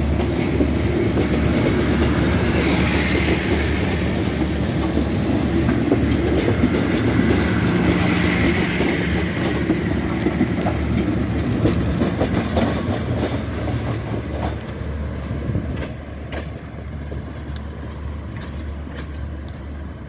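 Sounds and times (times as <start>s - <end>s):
train wheels clacking: 0.0s - 20.0s.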